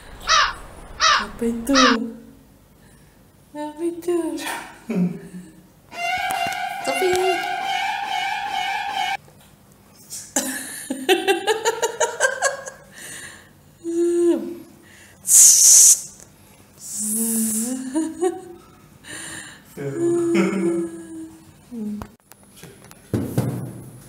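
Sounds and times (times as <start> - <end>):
wordless vocal sounds: 0.0 - 2.4, 19.8 - 22.0
person giggling: 4.9 - 5.5, 10.4 - 12.9, 19.8 - 21.4
loud breathy hiss: 14.8 - 16.2.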